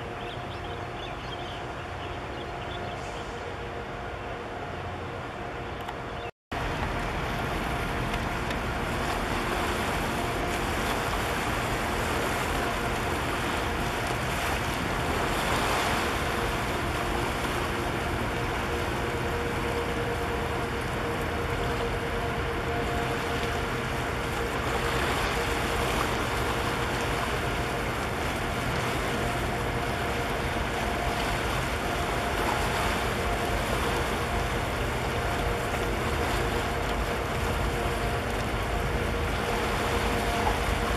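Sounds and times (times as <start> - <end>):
ship engine hum: 0.0 - 40.9
water along shore: 0.0 - 40.9.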